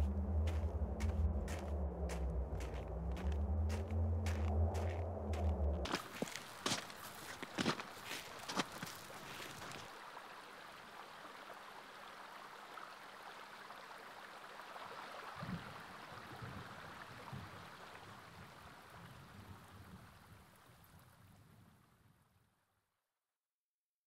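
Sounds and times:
soft low thuds: 0:00.0 - 0:06.8
stream running over pebbles: 0:00.5 - 0:19.2.

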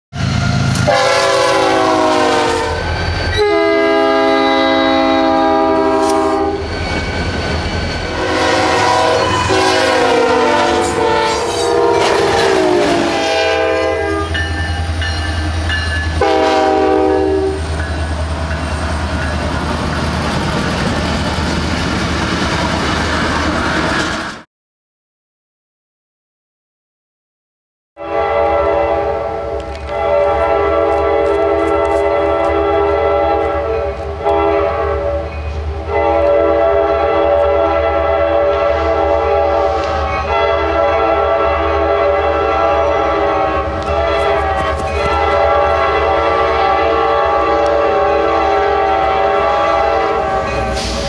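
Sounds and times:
train rumbling and rolling: 0:00.1 - 0:24.4, 0:28.0 - 0:51.0
locomotive air horn blasts: 0:00.7 - 0:06.6, 0:08.1 - 0:14.5, 0:16.1 - 0:17.7, 0:28.0 - 0:51.0.

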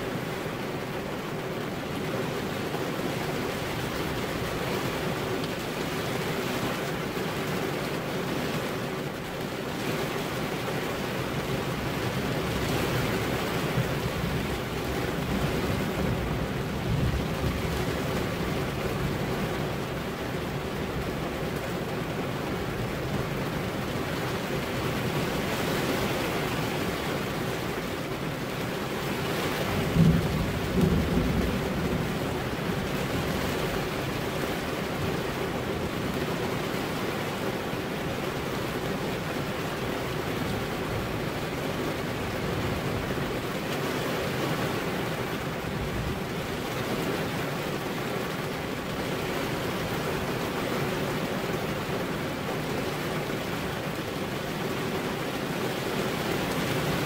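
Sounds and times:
heavy rain: 0:00.0 - 0:57.0
thunder: 0:29.7 - 0:33.6.

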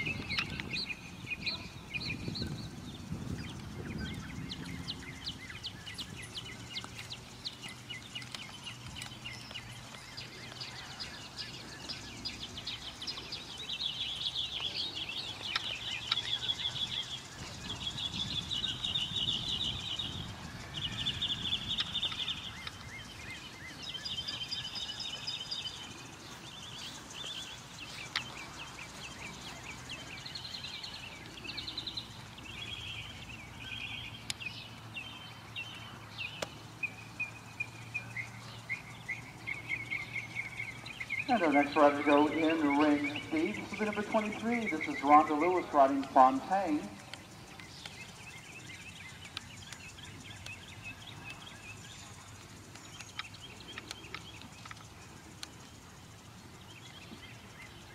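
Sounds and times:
birds singing trills: 0:00.0 - 0:57.9.

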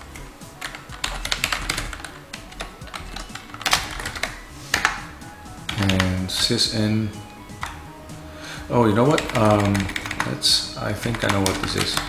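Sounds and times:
keyboard typing clicks: 0:00.0 - 0:05.0, 0:09.1 - 0:10.4.

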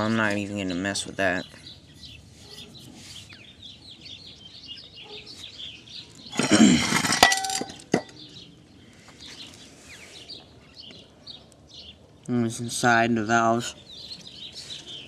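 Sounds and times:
engine block scraping on concrete: 0:06.4 - 0:08.2.

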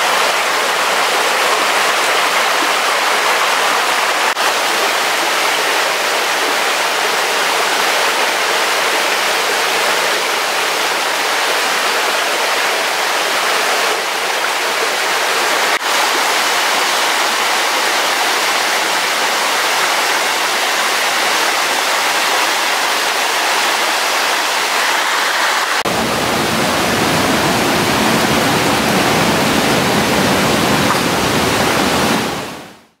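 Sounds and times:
water rushing over rocks: 0:00.0 - 0:32.9.

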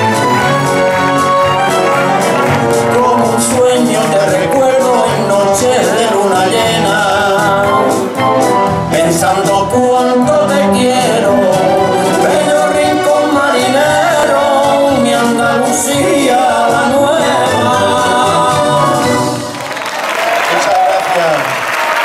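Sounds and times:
instrumental backing music: 0:00.0 - 0:19.8
men singing: 0:02.2 - 0:19.5.

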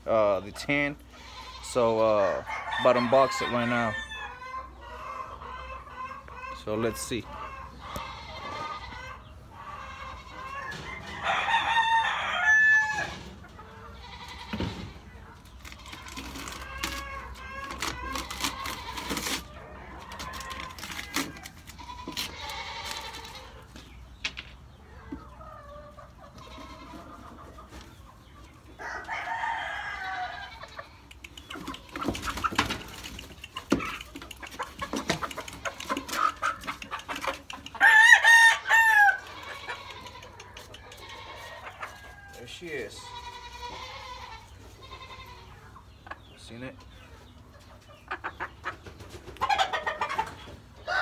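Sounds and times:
chickens clucking: 0:00.0 - 0:51.0
loud chicken call: 0:02.4 - 0:15.0, 0:28.8 - 0:31.0, 0:31.6 - 0:45.7, 0:49.4 - 0:51.0.

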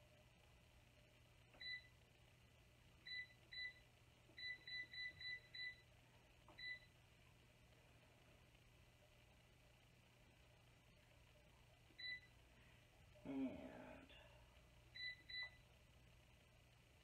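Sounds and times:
air fryer button beeps: 0:01.6 - 0:01.9, 0:03.1 - 0:03.8, 0:04.4 - 0:05.8, 0:06.5 - 0:06.9, 0:12.0 - 0:12.3, 0:15.0 - 0:15.6.

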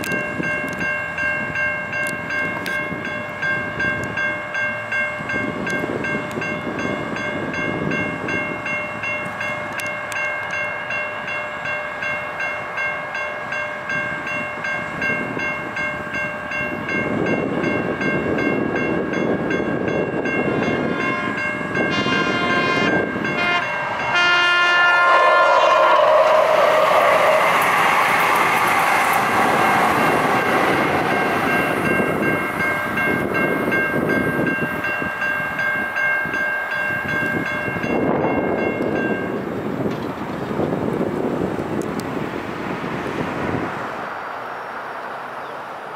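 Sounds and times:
railroad crossing bells ringing: 0:00.0 - 0:42.0
train passing with rushing noise: 0:00.0 - 0:45.9
train horn blasts: 0:20.7 - 0:27.7.

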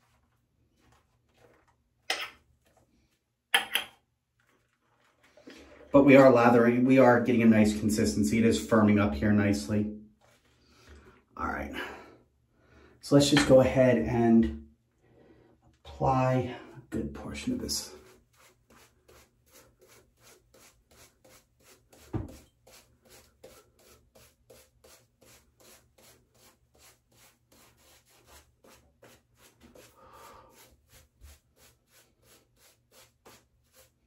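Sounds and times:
shaving brush scrubbing lather: 0:17.3 - 0:34.0.

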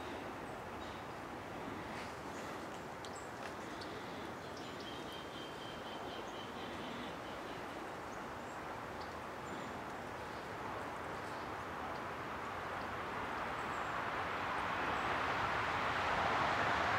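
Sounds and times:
faint fire crackles: 0:00.0 - 0:05.1.

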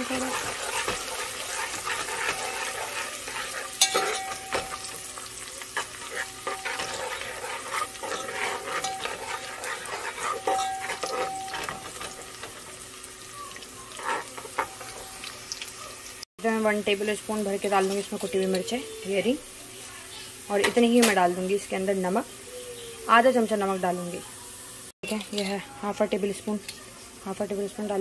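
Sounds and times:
steel ladle scraping and clinking: 0:00.0 - 0:12.7, 0:13.9 - 0:15.3
onions sizzling in hot oil: 0:00.0 - 0:28.0.

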